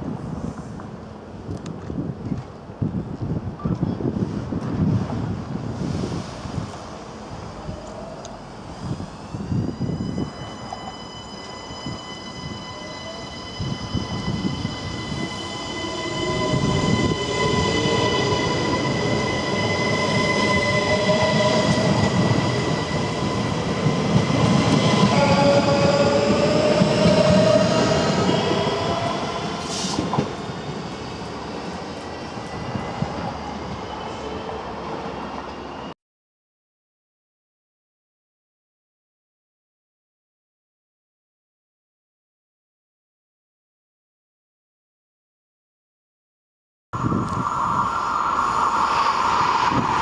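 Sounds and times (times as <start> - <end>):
electric train passing: 5.0 - 35.9, 47.0 - 50.0
train wheels rolling: 7.7 - 35.6.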